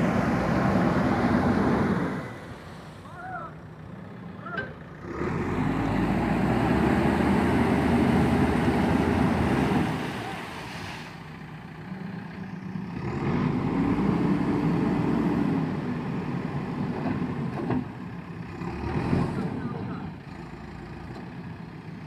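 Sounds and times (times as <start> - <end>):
diesel engine running: 0.0 - 22.0
wheels splashing through water: 6.6 - 11.4.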